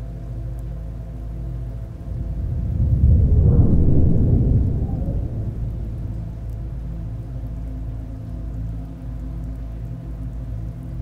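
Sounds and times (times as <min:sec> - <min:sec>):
steady low drone: 0:00.0 - 0:11.0
thunder rumbling: 0:01.1 - 0:09.0.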